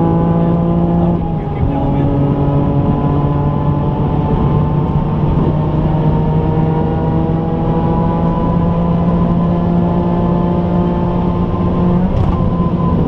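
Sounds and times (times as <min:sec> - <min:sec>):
road noise rushing: 0:00.0 - 0:09.3.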